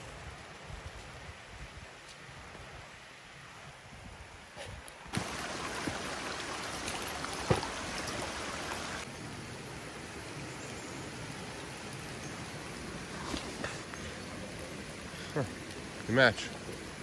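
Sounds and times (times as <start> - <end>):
heavy rain pouring: 5.1 - 17.0.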